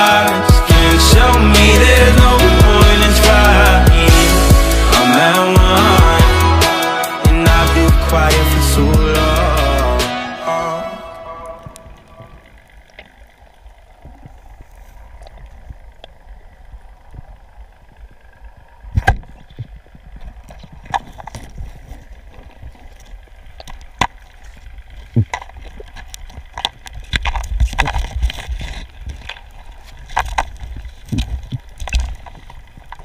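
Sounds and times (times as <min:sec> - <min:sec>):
underwater rumble: 0:11.1 - 0:33.0.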